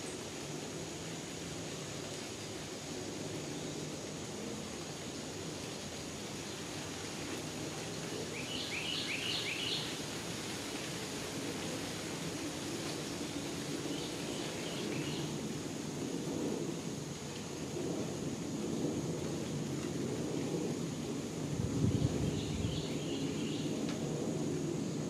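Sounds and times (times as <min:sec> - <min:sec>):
low outdoor rumble and hiss: 0:00.0 - 0:25.0
songbird calling: 0:08.3 - 0:10.0, 0:13.9 - 0:15.3, 0:22.2 - 0:23.8.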